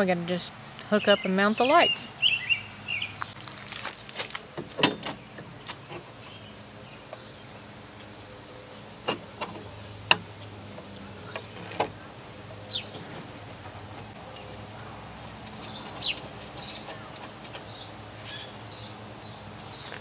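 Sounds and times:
metal light and bracket clicking: 0:14.2 - 0:18.3.

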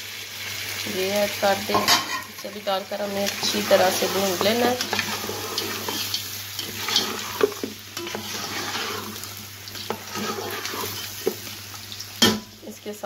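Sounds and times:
meat sizzling in hot oil: 0:00.0 - 0:13.0
stirring clicks and scrapes: 0:03.2 - 0:11.6.

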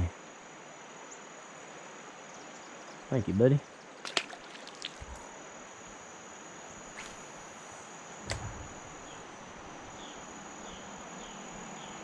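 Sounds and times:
river water hissing: 0:03.8 - 0:11.6.

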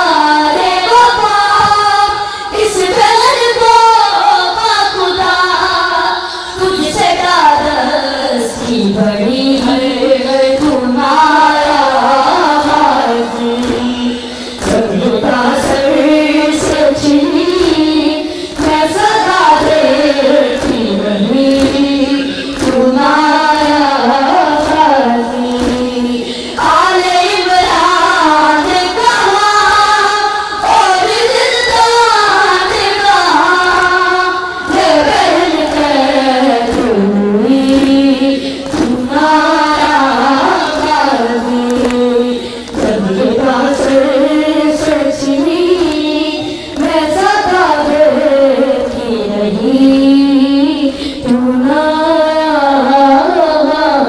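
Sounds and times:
crowd chanting: 0:08.5 - 0:50.0.

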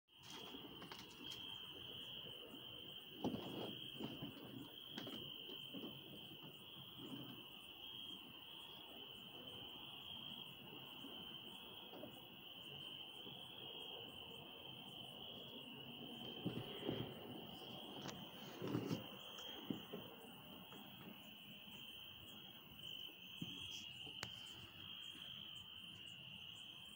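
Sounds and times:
crickets chirping: 0:00.1 - 0:26.9.

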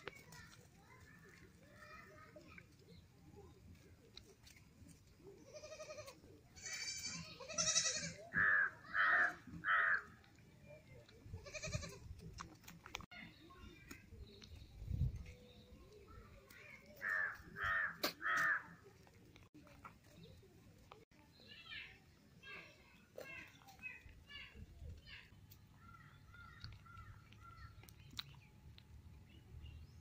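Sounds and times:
goat kid bleating: 0:05.4 - 0:09.6, 0:11.3 - 0:12.2.

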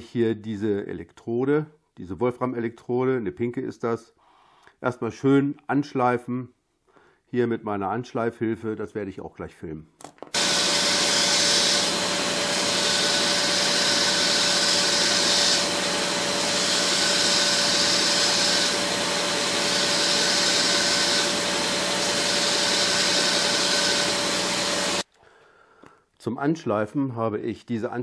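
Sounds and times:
belt grinder motor whir: 0:10.4 - 0:25.0.

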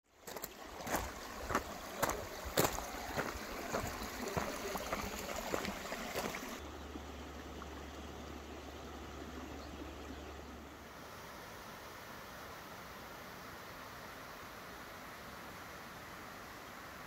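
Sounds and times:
footsteps crunching on gravel: 0:00.2 - 0:06.6
steady hiss: 0:10.8 - 0:17.0.

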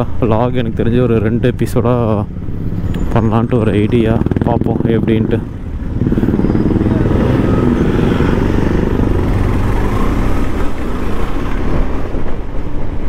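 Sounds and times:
motorcycle engine running: 0:02.2 - 0:11.0.

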